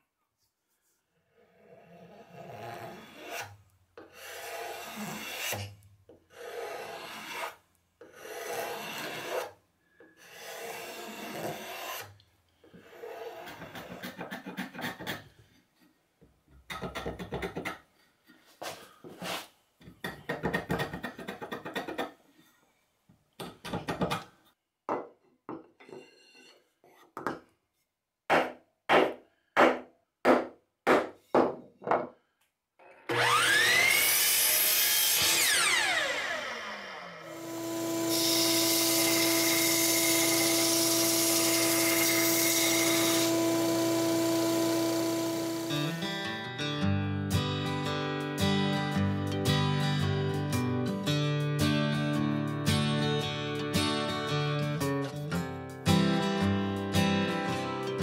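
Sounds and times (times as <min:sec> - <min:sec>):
block plane shaving wood: 0:02.6 - 0:05.7, 0:06.3 - 0:09.5, 0:10.2 - 0:12.1, 0:12.8 - 0:15.2, 0:37.6 - 0:46.1
card scraper scraping wood: 0:06.3 - 0:09.5
miter saw whining: 0:33.1 - 0:46.2.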